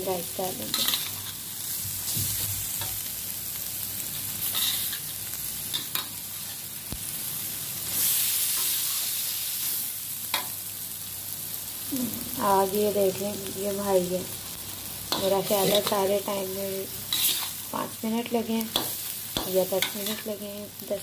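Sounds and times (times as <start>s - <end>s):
food sizzling in a wok: 0.0s - 21.0s
metal spatula scraping a pan: 0.6s - 1.4s, 4.4s - 5.0s, 15.2s - 16.1s, 17.1s - 17.6s.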